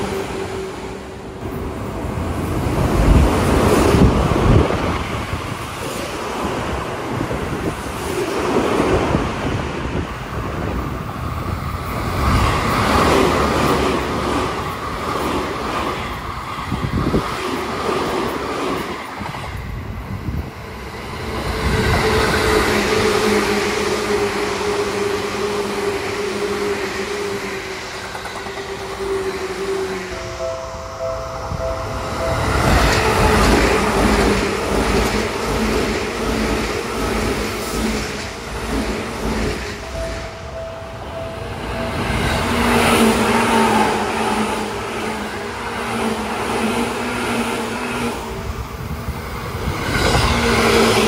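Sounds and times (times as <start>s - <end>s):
electric trains passing at speed: 0.0s - 51.0s.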